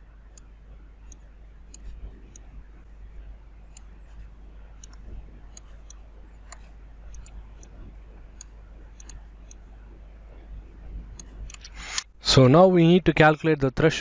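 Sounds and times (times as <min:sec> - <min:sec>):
faint low hum: 0:00.0 - 0:14.0
computer mouse clicking: 0:00.3 - 0:02.5, 0:03.7 - 0:09.7, 0:11.1 - 0:12.1.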